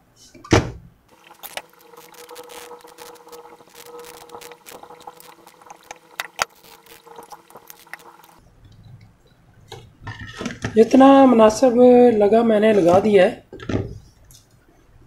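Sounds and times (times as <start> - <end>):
faint steady hum: 1.0 - 10.0
small clicks and crackles: 1.1 - 9.0.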